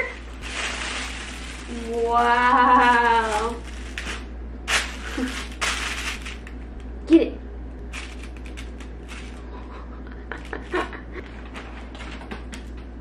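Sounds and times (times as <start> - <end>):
plastic bag crinkling: 0.0 - 7.0, 7.8 - 9.6.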